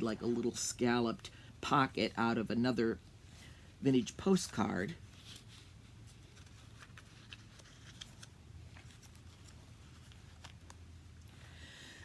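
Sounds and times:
low steady hum: 0:00.0 - 0:12.0
paper rustling: 0:04.3 - 0:11.0.

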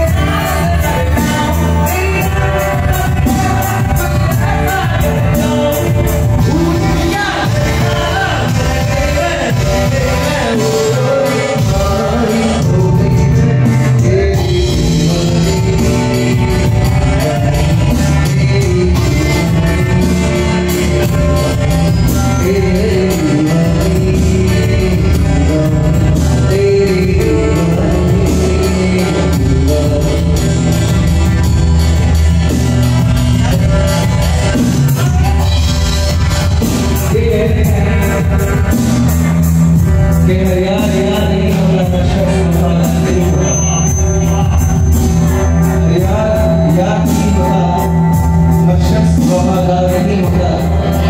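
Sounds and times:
drums keeping a steady beat: 0:00.0 - 0:51.0
person singing: 0:00.0 - 0:51.0
cymbals: 0:42.4 - 0:49.6.

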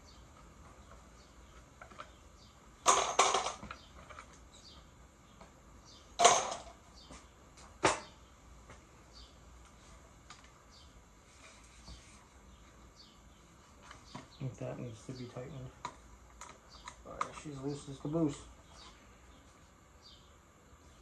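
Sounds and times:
tools clattering on wooden bench: 0:02.8 - 0:04.3, 0:06.2 - 0:07.2.

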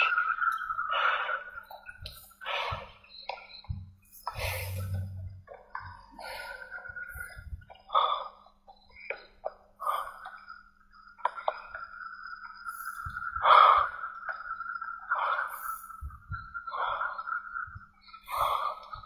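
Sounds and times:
steady high-pitched tone: 0:00.0 - 0:08.2.

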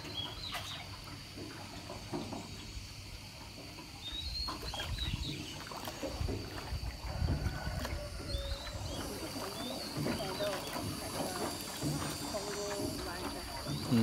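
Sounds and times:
faint water splashing: 0:00.0 - 0:14.0.

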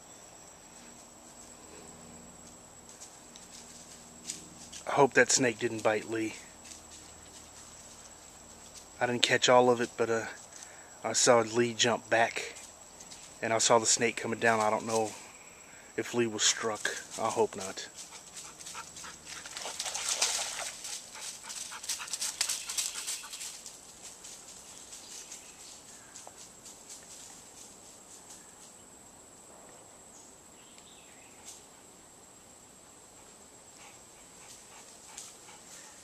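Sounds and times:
dog panting: 0:18.0 - 0:20.2, 0:20.8 - 0:23.5, 0:33.7 - 0:36.0
dog moving about: 0:18.0 - 0:25.3.

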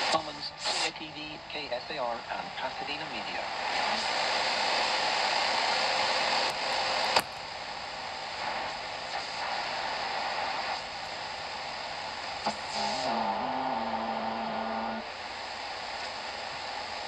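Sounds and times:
radio static hiss: 0:00.0 - 0:17.0
radio dial clicks: 0:06.1 - 0:07.4
low wavering radio whistle: 0:12.8 - 0:15.0.

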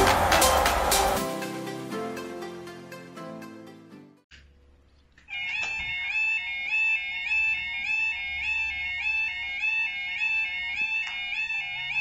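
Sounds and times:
level crossing alarm warbling: 0:05.3 - 0:12.0.

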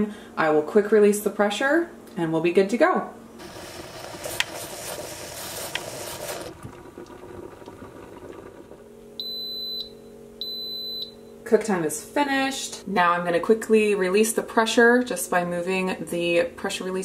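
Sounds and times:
pressure cooker high beeps: 0:09.2 - 0:11.4.

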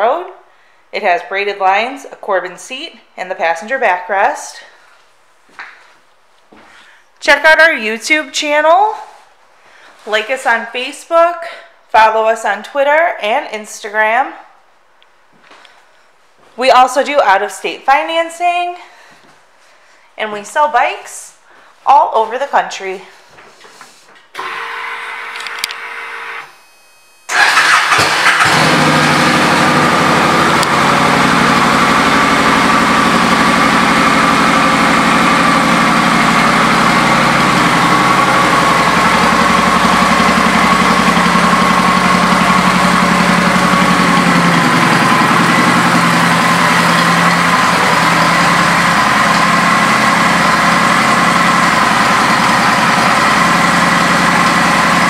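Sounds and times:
motorcycle engine starting and idling: 0:24.4 - 0:26.4, 0:27.3 - 0:55.0.

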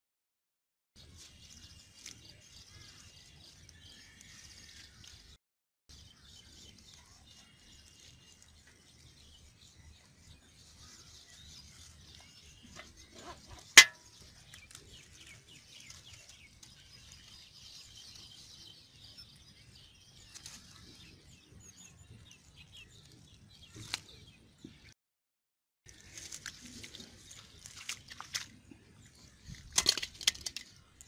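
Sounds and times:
faint birds chirping: 0:01.0 - 0:25.0
fishing net rustling: 0:25.9 - 0:28.5.

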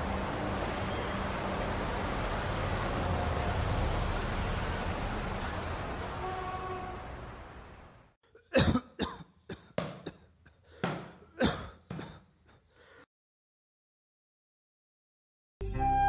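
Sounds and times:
man coughing: 0:08.3 - 0:12.3.

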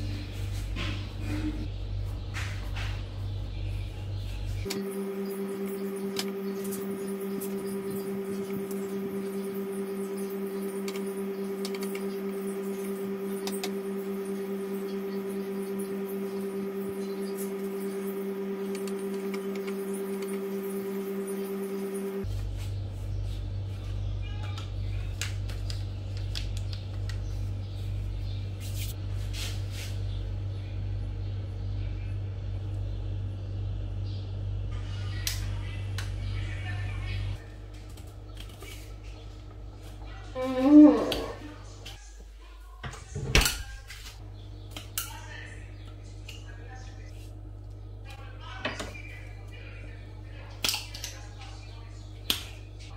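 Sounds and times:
steady low hum: 0:00.0 - 0:52.9.

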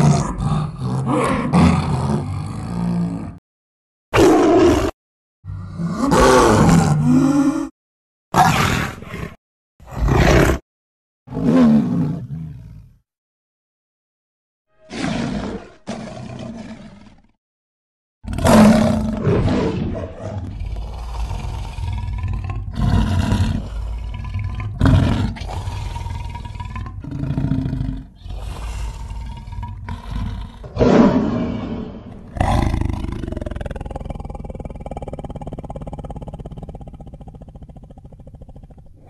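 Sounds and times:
lion roars: 0:00.0 - 0:03.4, 0:04.2 - 0:07.7, 0:08.4 - 0:10.6, 0:11.3 - 0:13.0, 0:14.9 - 0:17.3, 0:18.2 - 0:39.0.

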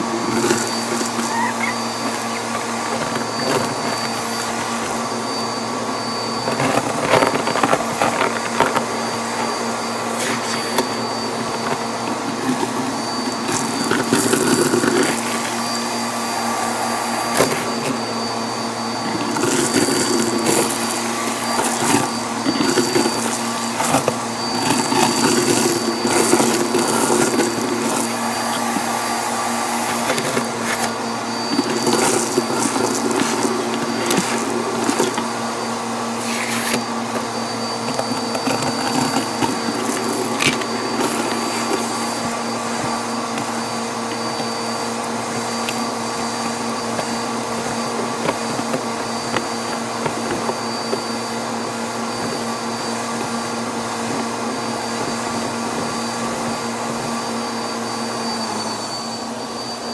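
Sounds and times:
vacuum cleaner whining: 0:00.0 - 0:59.9
debris rattling up a hose: 0:19.0 - 0:35.4.

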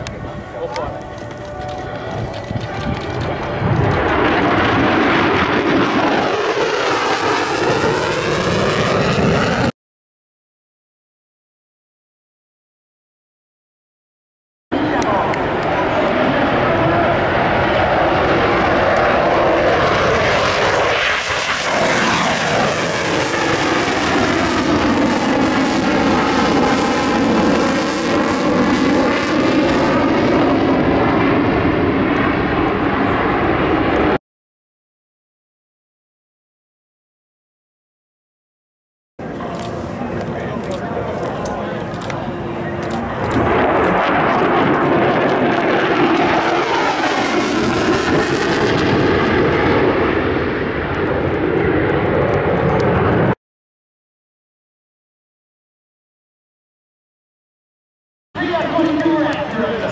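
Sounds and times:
jet flying past: 0:00.0 - 0:09.7, 0:14.8 - 0:34.2, 0:39.2 - 0:53.4.

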